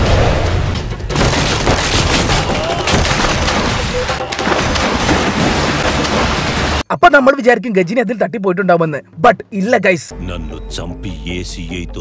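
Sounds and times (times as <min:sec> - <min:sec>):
rapid gunfire cracks: 0:01.1 - 0:06.8
wood splintering: 0:01.1 - 0:06.8.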